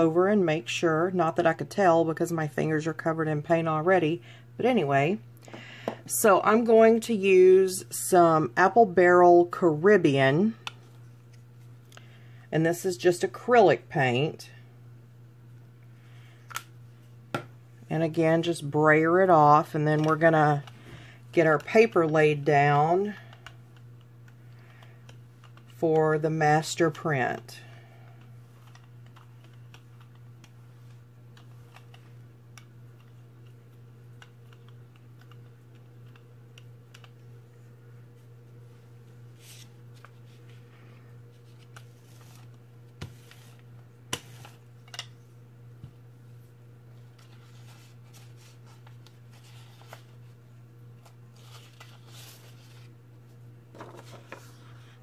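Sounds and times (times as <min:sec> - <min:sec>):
steady low hum: 0:00.0 - 0:55.0
paper rustling: 0:51.0 - 0:52.9, 0:53.7 - 0:54.7.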